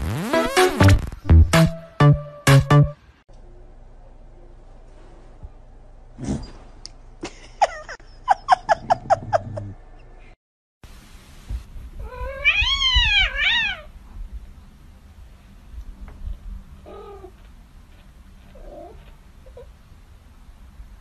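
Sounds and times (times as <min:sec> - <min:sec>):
cat meowing: 0:12.0 - 0:13.9.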